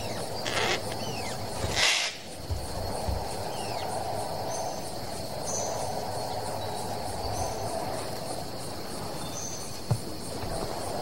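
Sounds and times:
insect pulsing trill: 0.0 - 11.0
insects buzzing: 0.0 - 11.0.

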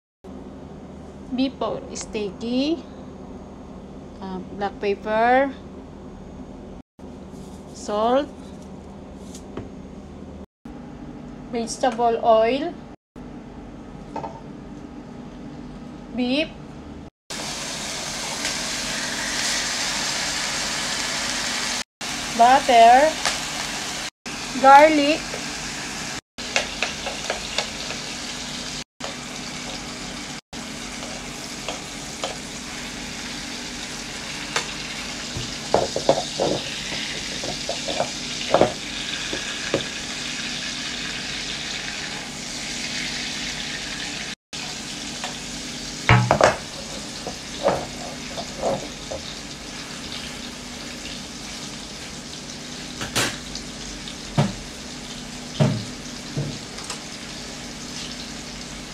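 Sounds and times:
steak sizzling in a pan: 17.3 - 54.3.

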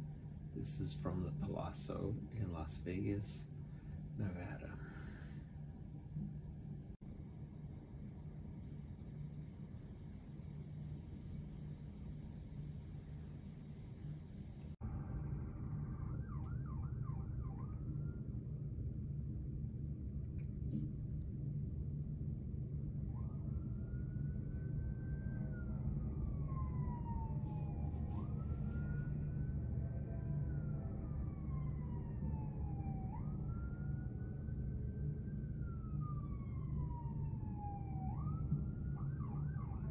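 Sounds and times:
city traffic rumble: 9.2 - 39.9
emergency siren wailing: 14.8 - 18.8, 22.8 - 39.9.

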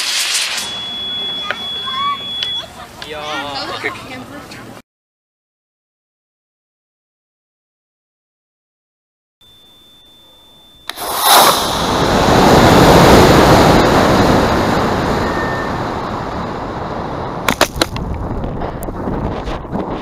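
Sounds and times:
faint high whine: 0.0 - 2.8, 9.4 - 16.5
rocket motor roaring: 10.9 - 17.4
wind noise: 10.9 - 20.0.

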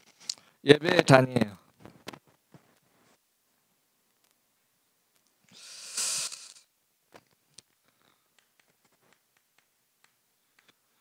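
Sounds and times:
brief rush of noise: 5.6 - 6.7.

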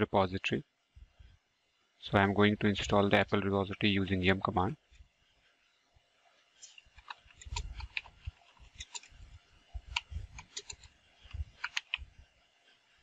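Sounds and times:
keyboard keystrokes clicking: 11.5 - 12.0.

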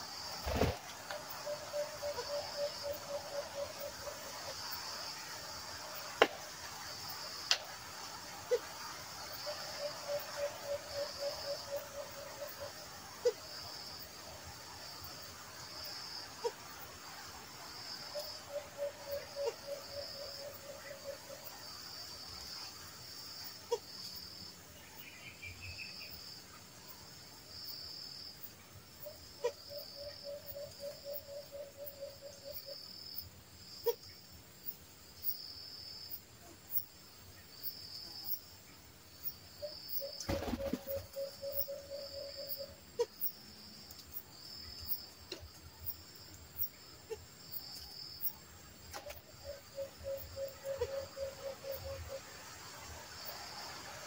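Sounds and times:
high pulsing insect chirp: 0.0 - 54.0
dove low hooting calls: 0.5 - 4.4, 9.4 - 13.4, 18.2 - 21.5, 29.0 - 32.8, 40.0 - 43.1, 49.0 - 52.3.

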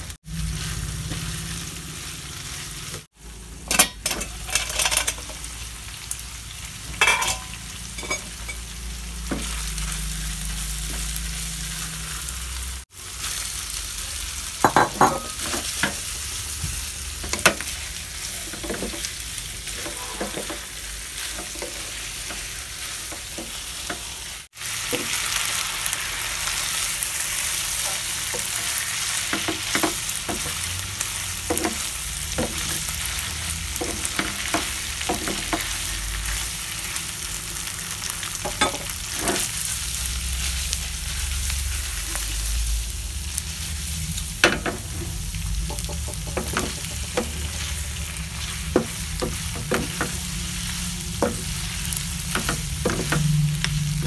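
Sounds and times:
food sizzling in a frying pan: 0.0 - 54.0
spatula scraping a pan: 17.4 - 24.1.

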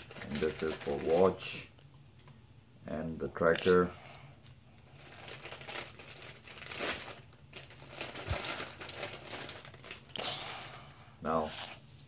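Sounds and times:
plastic bags crinkling: 0.0 - 1.6, 4.4 - 10.9.

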